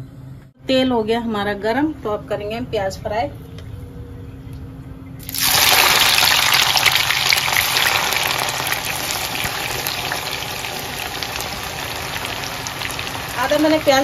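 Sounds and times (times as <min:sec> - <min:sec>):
onions sizzling in hot oil: 0:05.2 - 0:14.0.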